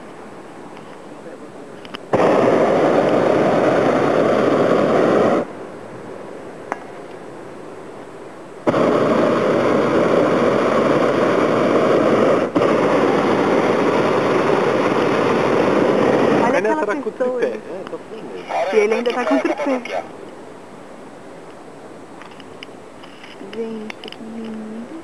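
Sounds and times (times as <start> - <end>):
propane burner blasting: 2.0 - 5.5, 8.6 - 17.5, 18.3 - 20.0.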